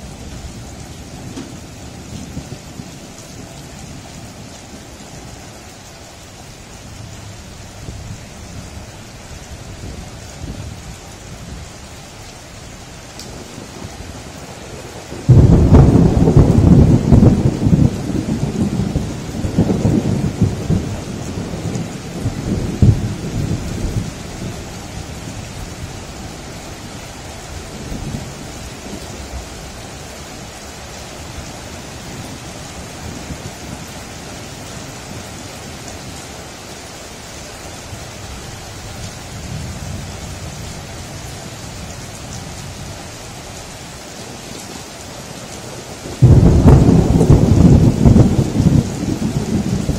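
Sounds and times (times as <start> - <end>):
heavy rain hissing: 0.0 - 49.9
distant thunder rumble: 13.3 - 26.4, 46.0 - 49.9
thunder cracking and rolling: 14.7 - 24.6, 46.1 - 49.9.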